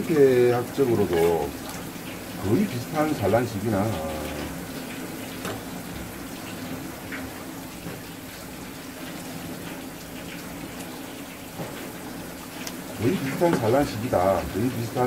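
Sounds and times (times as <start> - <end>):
tap water splashing on board: 3.9 - 14.5.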